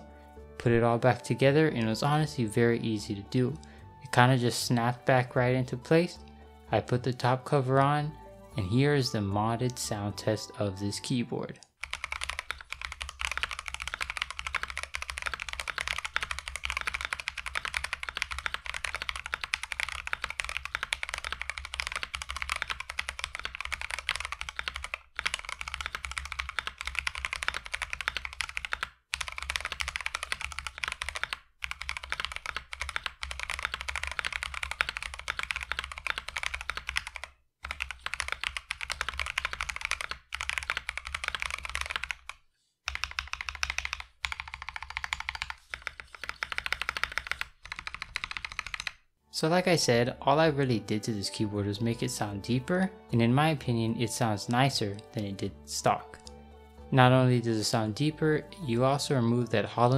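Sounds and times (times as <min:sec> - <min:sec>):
fast mechanical keyboard typing: 0:11.8 - 0:49.0.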